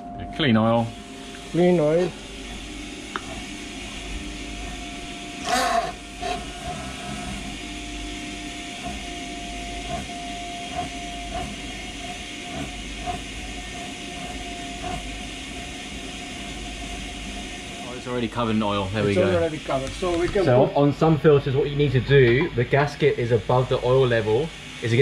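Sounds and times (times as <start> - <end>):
oil pump humming and hissing: 0.0 - 25.0.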